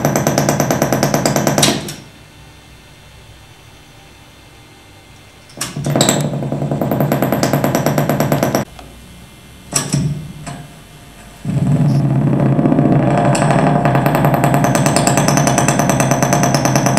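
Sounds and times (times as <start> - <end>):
low hum: 8.3 - 16.9
pulsing electronic buzz: 11.4 - 16.9.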